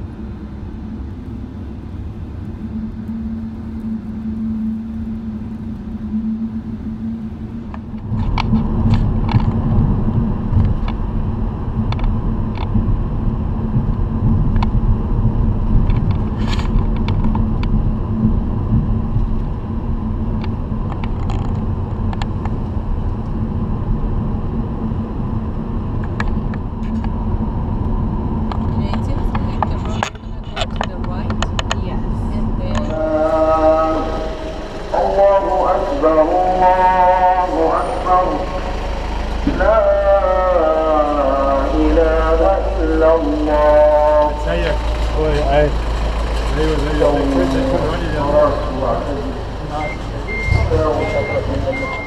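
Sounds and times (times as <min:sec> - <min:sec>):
tyre and engine rumble in car: 0:00.0 - 0:52.0
small clicks and rattles: 0:20.4 - 0:22.6.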